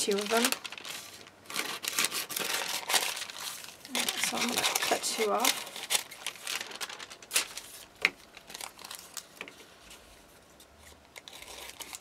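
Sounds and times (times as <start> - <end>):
paper crinkling: 0.0 - 12.0
scissors snipping paper: 3.9 - 6.2.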